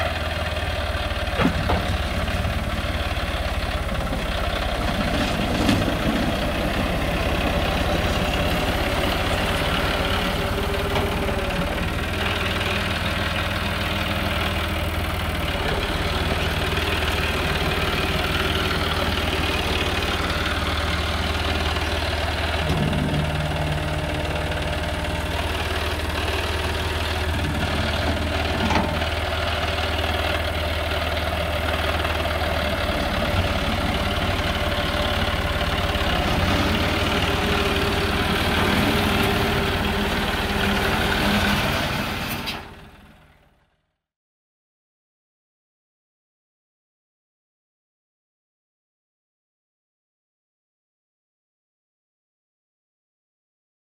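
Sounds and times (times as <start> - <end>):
tractor diesel engine running: 0.0 - 43.8
loader bucket scraping gravel: 3.8 - 11.3, 18.4 - 42.8.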